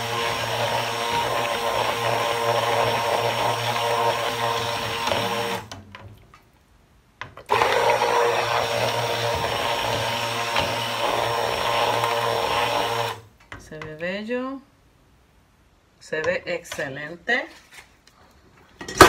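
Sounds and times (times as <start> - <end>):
stick blender motor humming: 0.0 - 5.8, 7.4 - 13.2.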